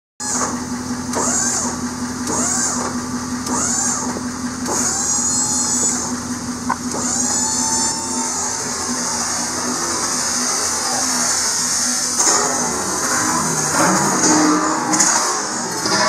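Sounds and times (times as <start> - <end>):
hydraulic pump motor hum: 0.2 - 16.0
pulsing squeal: 0.2 - 16.0.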